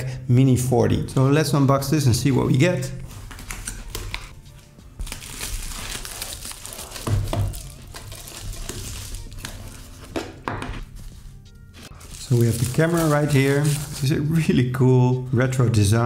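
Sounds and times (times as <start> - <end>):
background music: 0.0 - 16.0
bubble wrap crinkling: 3.0 - 14.4
cardboard rustling: 5.0 - 14.3.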